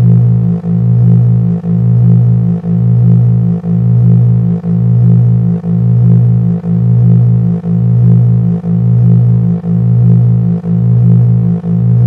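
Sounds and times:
low synthesizer drone pulsing: 0.0 - 12.0.

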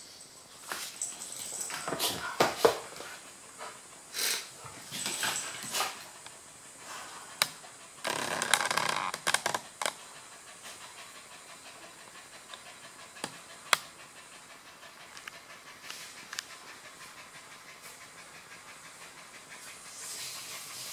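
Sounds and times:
dogs scuffling on wooden floor: 0.6 - 3.8, 4.6 - 6.1
dogs panting: 1.0 - 8.1, 9.5 - 20.9.

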